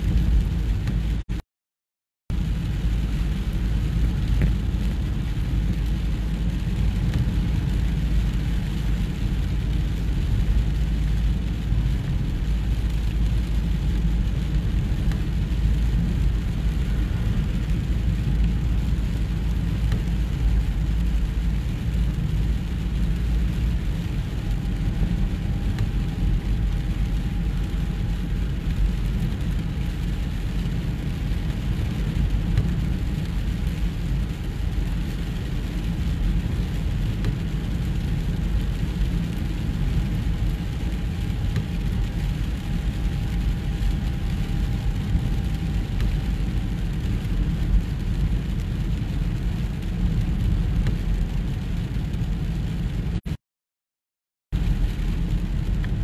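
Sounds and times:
car rumble from inside cabin: 0:00.0 - 0:01.2, 0:02.4 - 0:53.3
rain on windscreen: 0:00.0 - 0:01.4, 0:02.3 - 0:53.4, 0:54.5 - 0:56.0
tyres hissing on wet road: 0:02.4 - 0:53.2.

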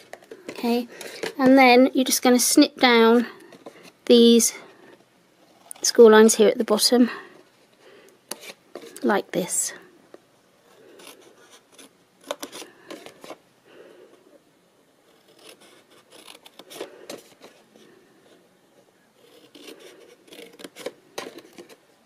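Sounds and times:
scissors snipping paper: 0:19.2 - 0:21.8.

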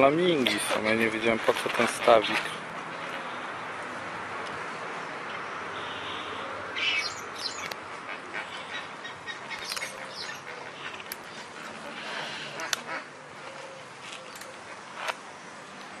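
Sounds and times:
flamingos calling: 0:05.8 - 0:13.7.

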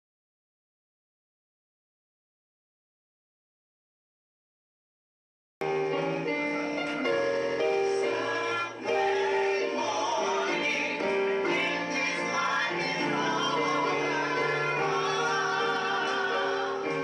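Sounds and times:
choir singing: 0:05.6 - 0:17.0
keyboard accompaniment: 0:05.6 - 0:17.0.

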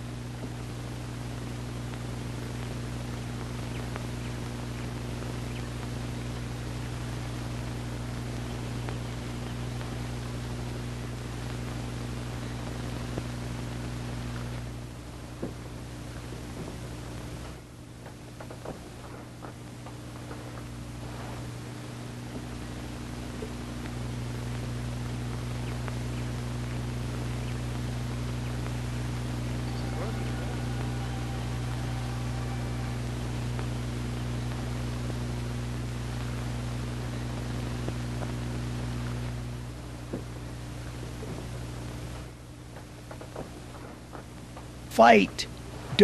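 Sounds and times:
constant hiss: 0:00.0 - 0:46.0
low electrical hum: 0:00.0 - 0:46.0.

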